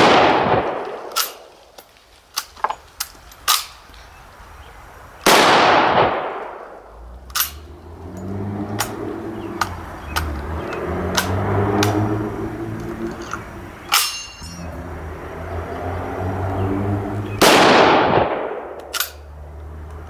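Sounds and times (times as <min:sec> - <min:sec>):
rifle shots: 0:00.0 - 0:01.5, 0:05.2 - 0:06.8, 0:17.4 - 0:19.1
rifle bolt clicks: 0:18.6 - 0:19.2.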